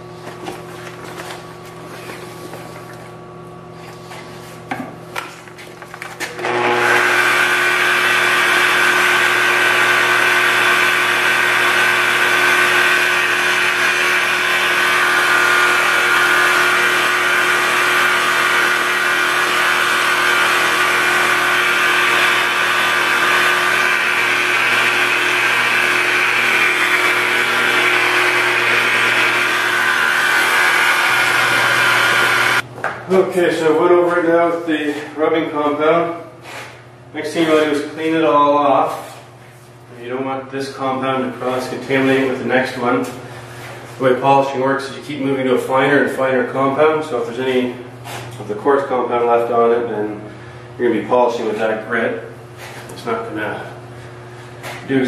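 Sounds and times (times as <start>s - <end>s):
rotary polisher motor whine: 6.3s - 32.7s.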